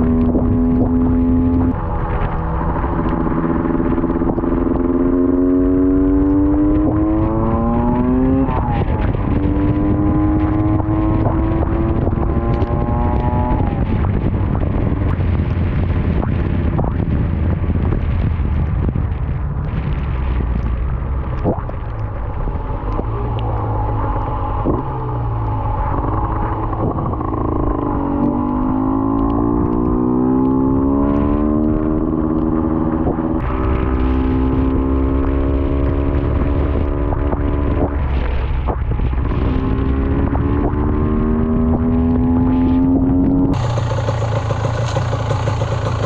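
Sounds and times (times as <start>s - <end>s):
motorcycle engine running: 0.0s - 46.0s
wind noise on microphone: 0.0s - 46.0s
bike rolling through water: 43.6s - 46.0s.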